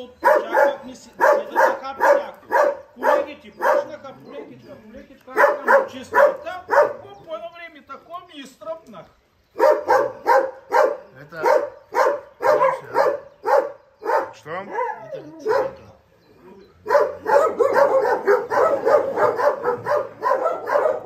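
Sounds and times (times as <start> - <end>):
dogs barking: 0.0 - 4.6, 5.3 - 7.2, 9.5 - 21.0.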